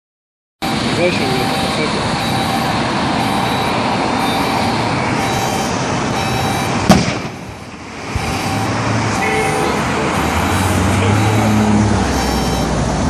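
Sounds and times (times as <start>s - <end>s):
highway traffic: 0.6s - 13.0s
gas cylinder explosion bang: 6.8s - 7.4s.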